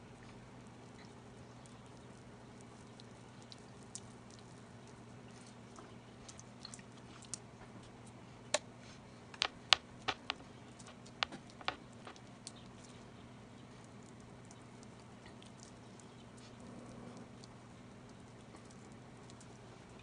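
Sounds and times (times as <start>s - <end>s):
steady low hum: 0.0s - 20.0s
hot fat popping in skillet: 9.4s - 12.2s.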